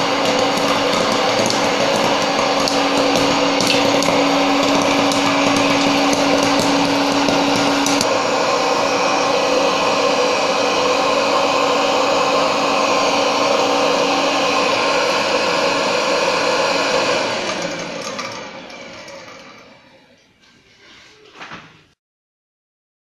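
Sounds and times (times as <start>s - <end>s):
popcorn kernels popping: 0.0s - 8.1s
popcorn maker blower running: 0.0s - 20.2s.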